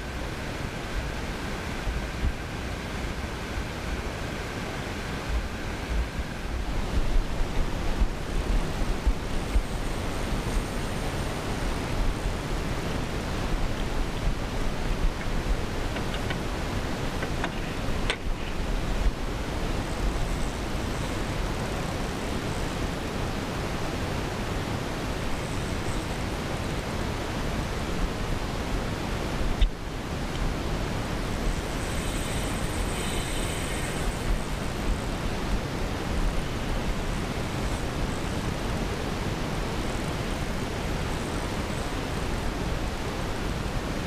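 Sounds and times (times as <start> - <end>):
steady rushing noise: 0.0 - 44.0.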